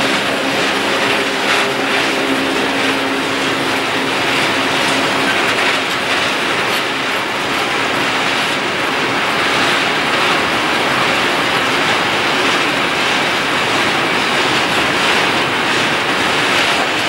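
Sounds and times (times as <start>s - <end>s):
train wheels running on rails: 0.0s - 17.0s.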